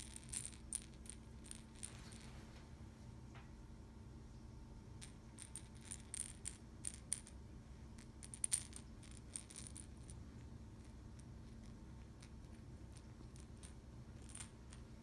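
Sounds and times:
toy rattling and clicking: 0.0s - 2.2s, 5.0s - 7.4s, 8.0s - 10.2s, 10.8s - 14.9s.

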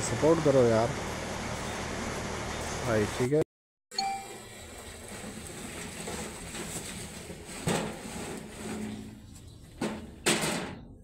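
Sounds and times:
metal wheelbarrow knocking: 5.0s - 9.2s.

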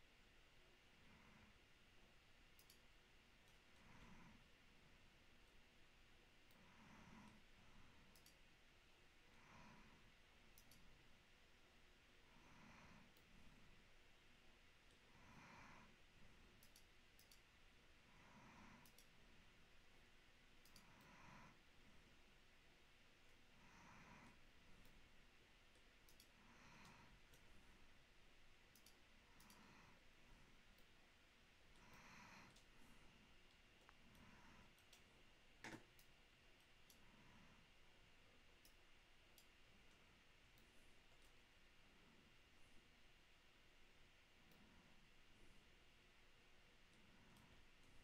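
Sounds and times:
soft breathing: 0.2s - 48.0s
computer mouse clicks: 2.5s - 4.2s, 6.4s - 8.5s, 10.4s - 11.0s, 16.5s - 17.5s, 18.6s - 19.2s, 20.6s - 21.4s, 25.7s - 27.6s, 28.7s - 30.0s, 30.7s - 31.0s, 31.7s - 32.7s, 33.5s - 37.1s, 38.6s - 41.5s
clicks at a computer desk: 35.6s - 36.1s.

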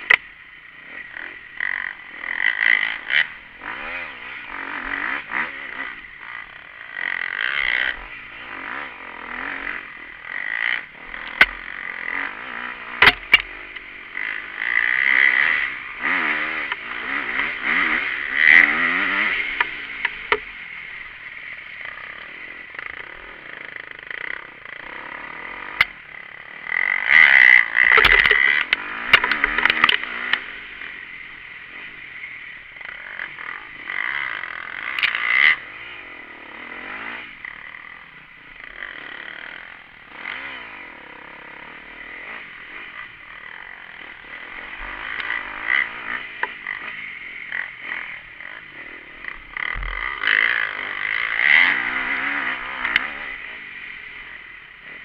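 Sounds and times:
dirt bike engine revving: 0.0s - 55.0s
knocks and clatter from bumps: 27.8s - 30.0s.

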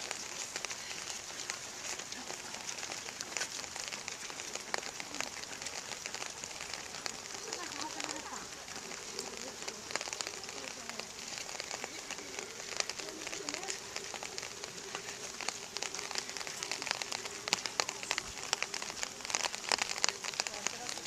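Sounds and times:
drops ticking close by: 0.0s - 21.0s
rain falling: 0.0s - 21.0s.

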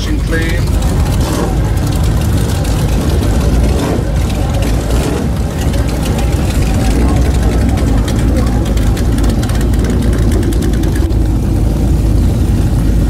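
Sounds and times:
motorcycle engine idling: 0.0s - 13.0s.

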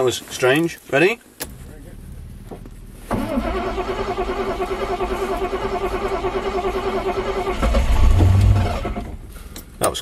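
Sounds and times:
engine cranking on starter motor: 3.0s - 9.2s.

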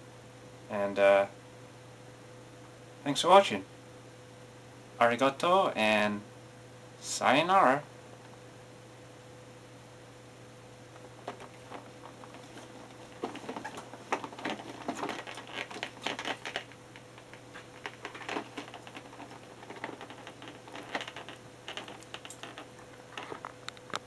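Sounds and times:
faint electrical hum: 0.0s - 24.0s
cardboard boxes handled: 11.0s - 23.4s.

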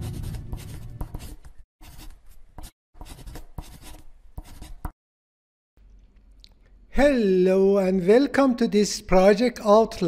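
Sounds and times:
marker scratching on surface: 0.0s - 5.0s.

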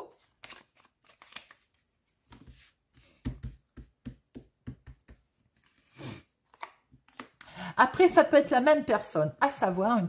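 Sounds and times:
playing cards tapping and knocking: 2.3s - 5.8s.

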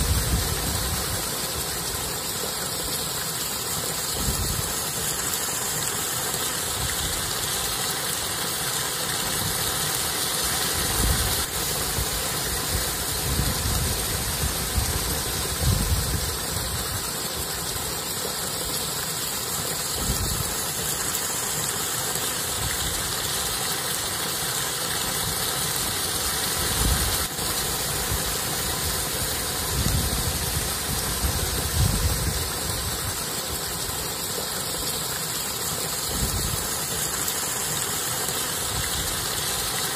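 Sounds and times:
wind buffeting microphone: 13.2s - 16.4s, 29.7s - 32.5s.

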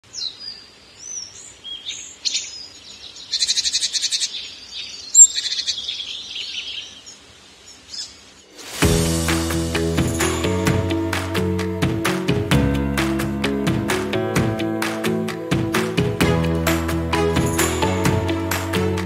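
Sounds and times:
songbirds chirping and whistling: 0.1s - 8.4s
bird trill: 3.3s - 7.0s.

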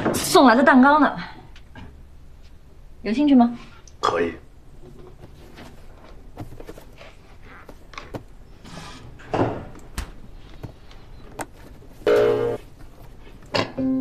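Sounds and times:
soft handling rustling: 4.8s - 13.5s.

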